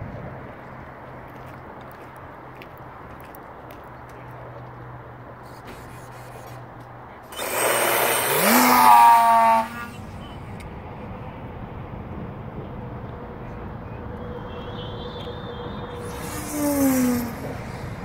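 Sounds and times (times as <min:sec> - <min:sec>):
electric motor loud rushing whine: 0:07.3 - 0:10.5, 0:14.1 - 0:18.0.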